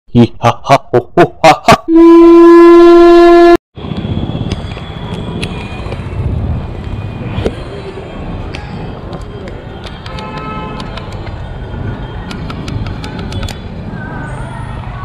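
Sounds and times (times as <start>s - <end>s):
long horn blast: 1.9s - 3.6s
street noise: 3.3s - 15.0s.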